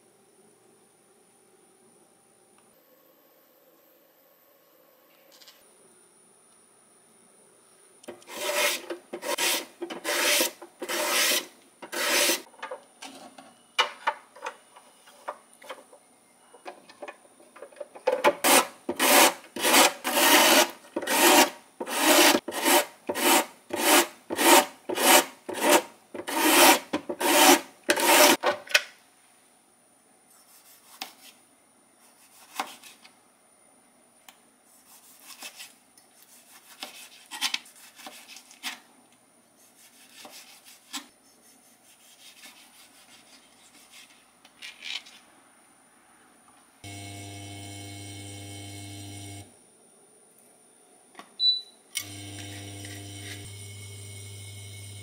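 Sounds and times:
knife cutting on plastic board: 8.1 - 12.4, 18.3 - 28.4
vegetables rasping on slicer blade: 8.1 - 12.5, 18.3 - 28.4.

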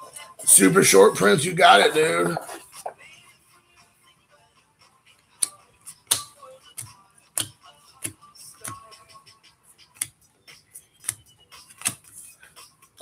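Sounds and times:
cards clicking and snapping: 5.4 - 8.8, 11.0 - 12.2.

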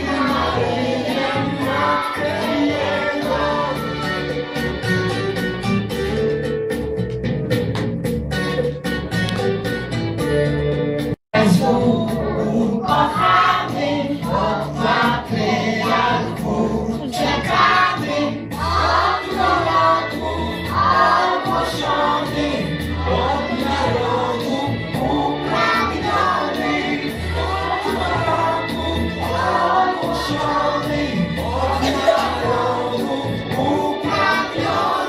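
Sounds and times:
choir singing: 0.0 - 4.3, 11.4 - 35.0
instrumental backing: 0.0 - 35.0.

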